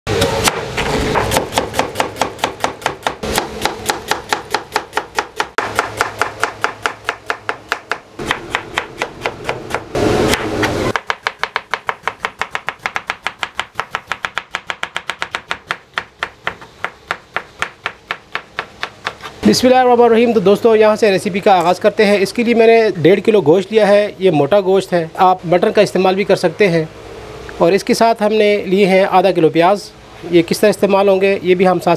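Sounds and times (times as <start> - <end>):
knife chopping on wooden board: 0.1 - 19.4.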